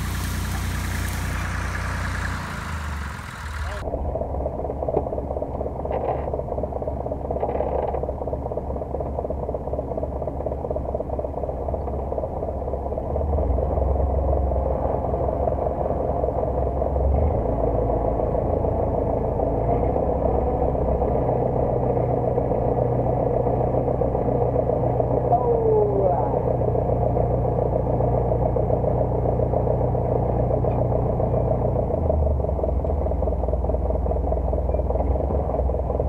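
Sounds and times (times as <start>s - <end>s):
tractor engine running: 0.0s - 36.0s.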